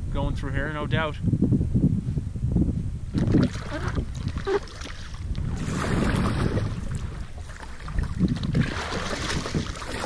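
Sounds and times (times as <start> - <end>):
wind buffeting microphone: 0.0 - 10.0
paddle strokes splashing in water: 3.2 - 10.0.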